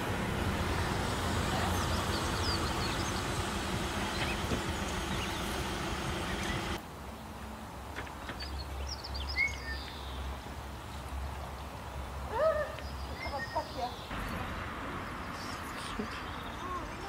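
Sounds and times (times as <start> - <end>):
vehicle hum: 0.0 - 8.2.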